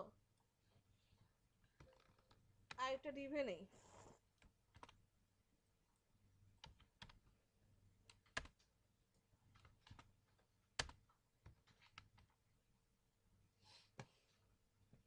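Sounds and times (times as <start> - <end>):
keyboard keystrokes: 4.7 - 5.0, 8.1 - 8.6, 9.6 - 10.1, 10.8 - 12.3.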